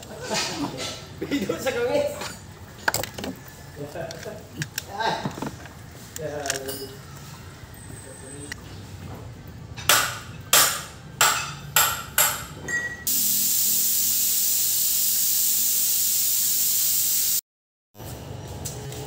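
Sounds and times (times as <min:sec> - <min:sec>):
loud steady hiss: 0:13.1 - 0:17.4.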